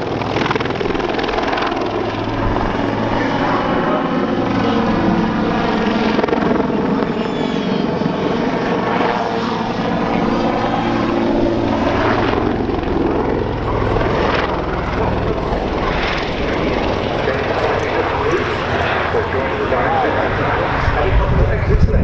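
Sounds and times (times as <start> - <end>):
helicopter rotor and engines: 0.0 - 22.0.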